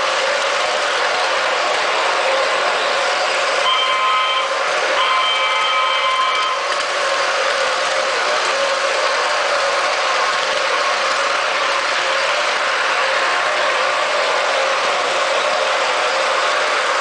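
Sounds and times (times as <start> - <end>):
model train wheels and motor hum: 0.0 - 17.0
electronic train horn: 3.6 - 6.8.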